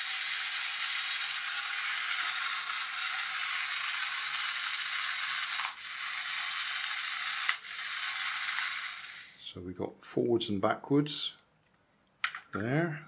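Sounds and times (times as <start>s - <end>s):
toy motor and gears whirring: 0.0s - 9.5s.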